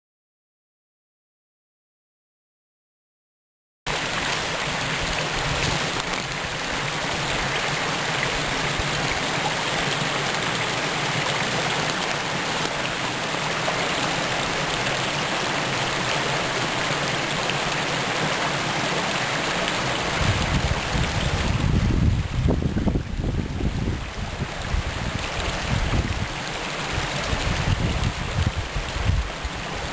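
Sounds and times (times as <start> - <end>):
stream running over rocks: 3.9 - 29.9.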